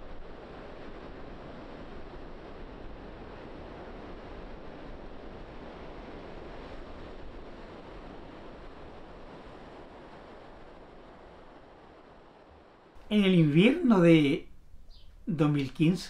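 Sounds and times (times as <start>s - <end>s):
ocean waves washing: 12.8s - 16.0s.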